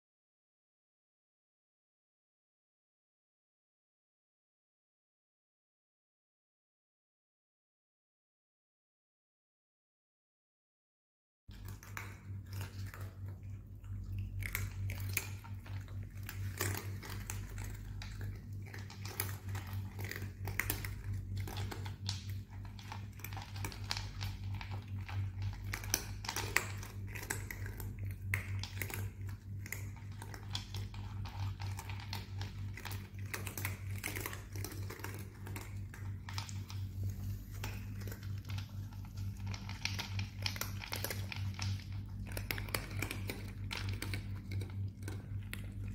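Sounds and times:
cats crunching dry kibble: 0:11.5 - 0:45.9
steady low hum: 0:11.5 - 0:45.9.

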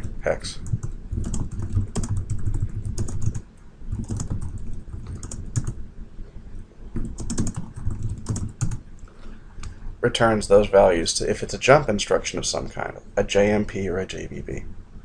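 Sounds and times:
computer keyboard typing: 0:00.0 - 0:05.8, 0:07.0 - 0:08.8.

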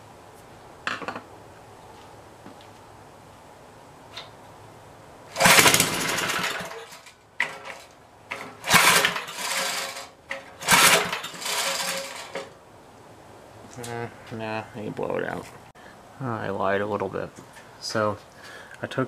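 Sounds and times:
engine cranking on pull-start: 0:05.3 - 0:12.5
recoil rope pulls: 0:05.3 - 0:12.5.

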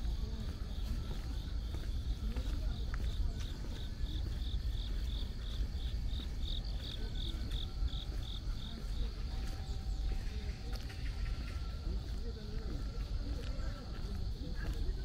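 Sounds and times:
insect chirping: 0:00.0 - 0:15.0.

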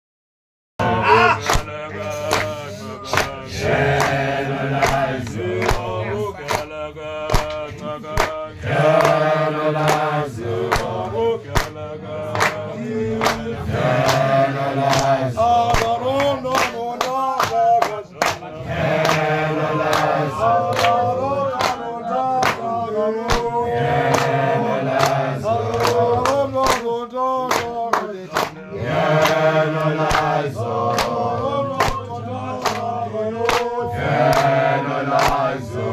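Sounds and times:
men singing and chanting: 0:00.8 - 0:35.9
hand claps: 0:01.4 - 0:35.7.

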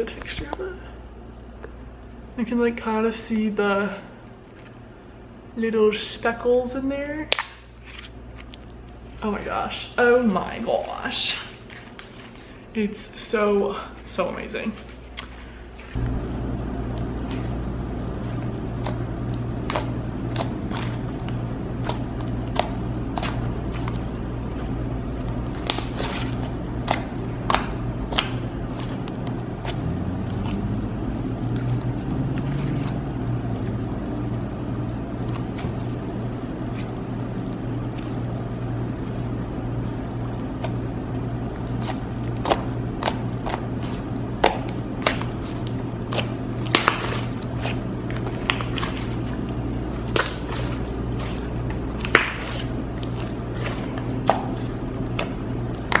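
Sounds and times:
low hum: 0:08.1 - 0:56.0.

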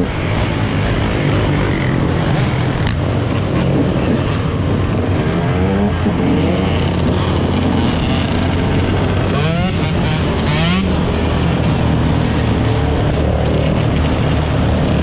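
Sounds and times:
dirt bike revving: 0:00.2 - 0:15.0.

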